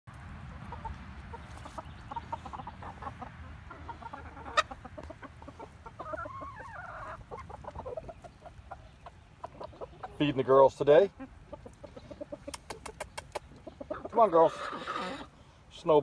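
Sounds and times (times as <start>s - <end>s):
hens clucking: 0.1s - 16.0s
hen drawn-out call: 13.9s - 15.4s.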